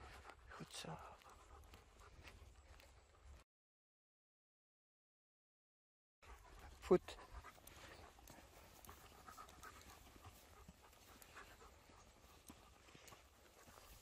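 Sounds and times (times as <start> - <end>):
dog panting: 0.0 - 3.4, 6.2 - 14.0
footsteps on sand: 0.0 - 3.4, 6.6 - 14.0.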